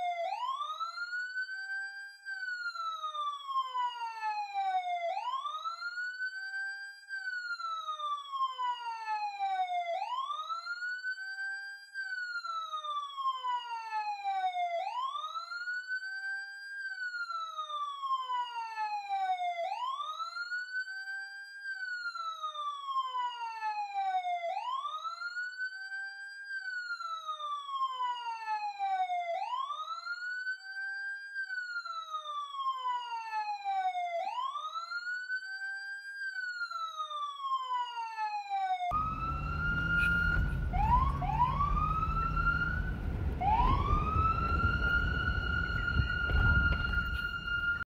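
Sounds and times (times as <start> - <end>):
police siren wailing: 0.0 - 47.9
low rumble: 39.2 - 47.6.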